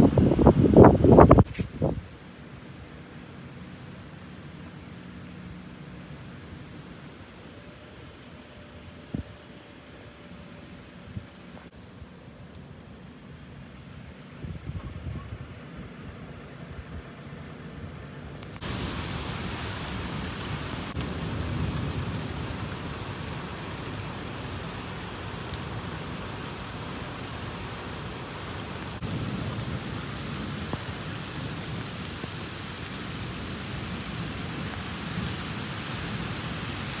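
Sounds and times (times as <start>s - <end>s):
steady rain: 0.0s - 14.4s, 15.6s - 37.0s.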